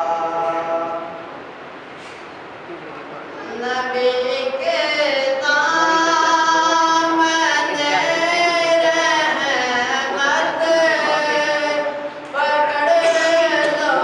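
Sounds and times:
man singing unaccompanied: 3.4 - 14.0.

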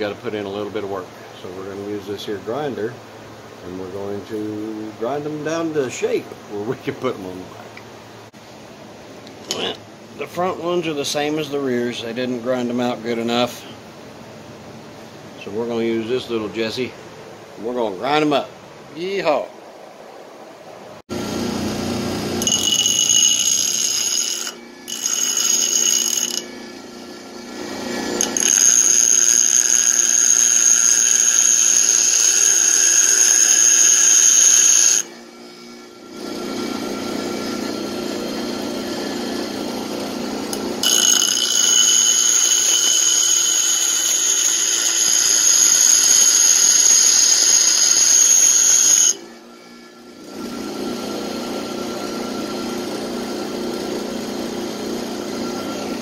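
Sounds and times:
bench grinder motor hum: 21.1 - 56.0
high-pitched metal grinding whine: 21.1 - 56.0.

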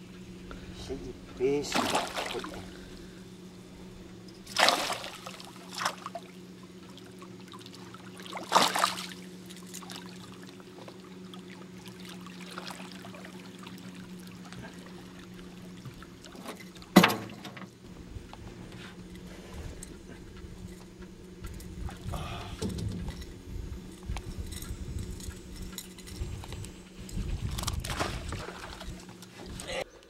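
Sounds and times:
fish splashing at water surface: 1.7 - 2.9, 4.5 - 6.3, 6.9 - 10.6
faint low hum: 17.8 - 30.0.

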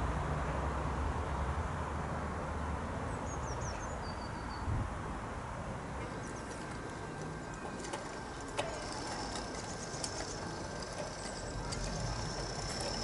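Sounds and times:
clicking wheels and gears: 5.9 - 13.0
model train motor whine: 6.0 - 13.0
small birds chirping: 6.0 - 13.0.

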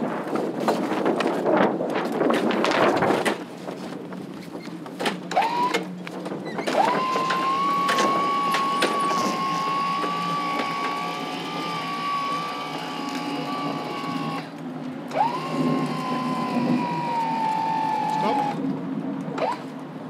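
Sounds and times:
electric motor whining: 5.3 - 5.9, 6.7 - 18.6.

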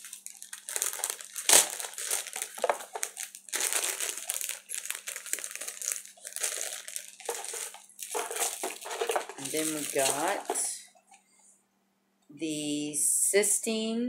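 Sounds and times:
packaging crinkling: 0.0 - 10.8.

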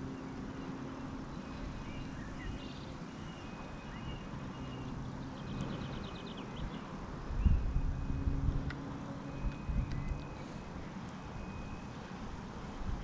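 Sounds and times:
small birds chirping: 0.0 - 12.0
low steady hum: 0.0 - 13.0
bird trill: 0.6 - 8.3.

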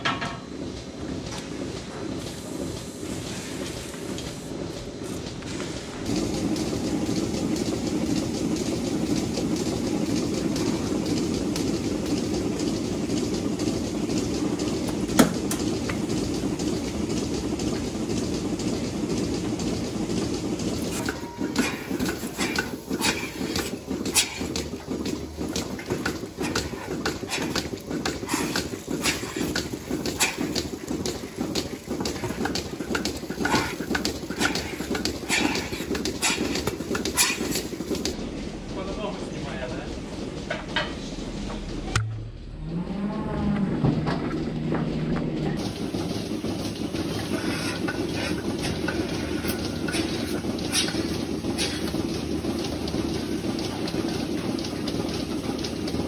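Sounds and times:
low machinery rumble: 0.0 - 56.0
hooves on metal grating: 3.2 - 42.0, 42.7 - 56.0
milking clusters clanking: 20.8 - 38.2.

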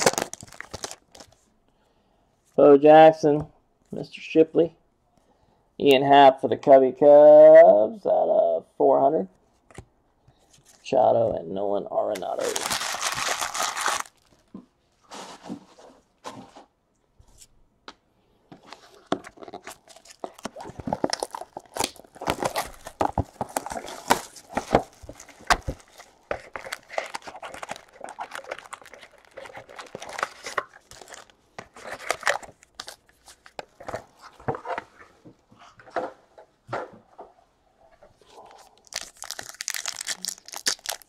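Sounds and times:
pack wrappers crinkling and tearing: 0.0 - 1.4, 12.2 - 14.5, 19.2 - 34.0, 38.6 - 41.0.

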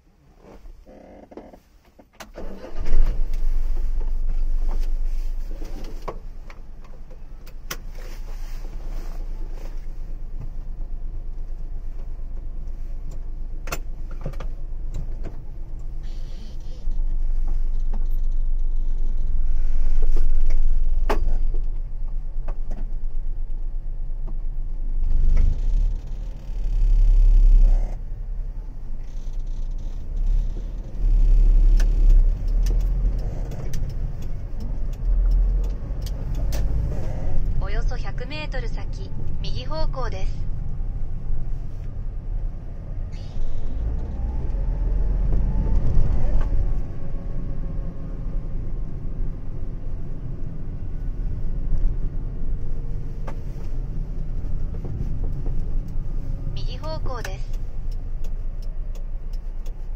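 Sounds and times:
car engine rumbling: 0.0 - 59.9
sharp clicks: 31.7 - 36.8.

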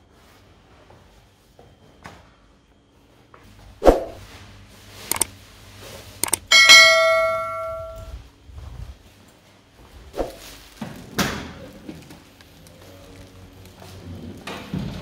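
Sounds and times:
mouse clicks: 6.2 - 6.4
bell ding: 6.2 - 8.1.

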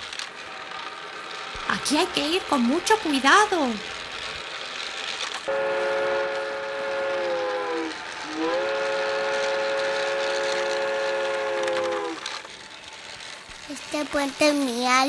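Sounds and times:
train whistle blasts: 5.4 - 12.4.

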